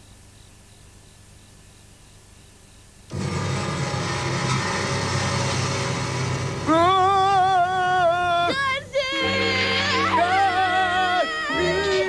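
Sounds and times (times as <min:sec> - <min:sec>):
eerie background music: 0:03.1 - 0:10.8.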